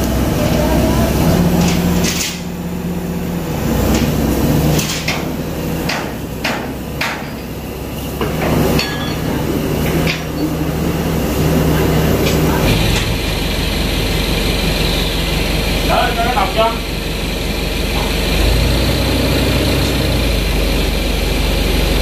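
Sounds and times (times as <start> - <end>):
diesel engine running: 0.0 - 22.0
hammer striking metal: 4.8 - 7.5.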